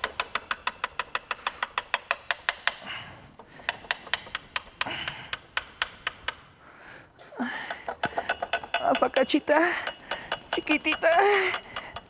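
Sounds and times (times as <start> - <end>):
hand ratchet clicking: 0.0 - 6.5, 7.5 - 12.0.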